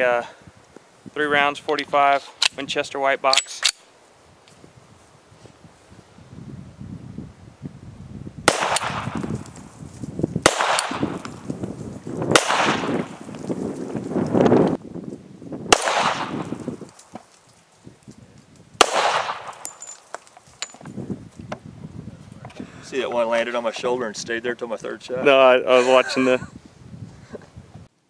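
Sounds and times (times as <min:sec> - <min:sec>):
pistol shots echoing: 0:08.5 - 0:09.2, 0:10.4 - 0:11.3, 0:12.3 - 0:13.2, 0:15.7 - 0:16.6, 0:18.8 - 0:19.8.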